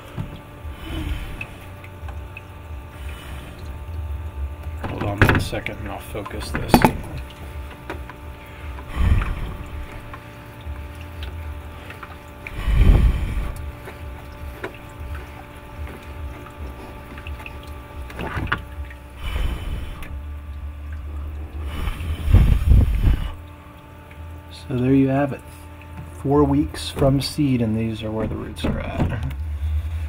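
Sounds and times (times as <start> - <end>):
fogger machine humming: 0.0 - 30.0
loud low rumbling bursts: 8.4 - 18.0, 18.7 - 23.6.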